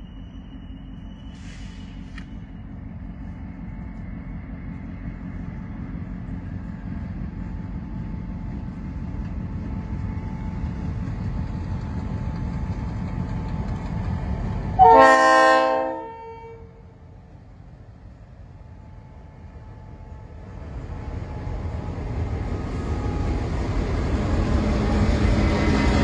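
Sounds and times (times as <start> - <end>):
diesel locomotive rumble: 0.0 - 26.0
train horn blast: 14.8 - 16.9.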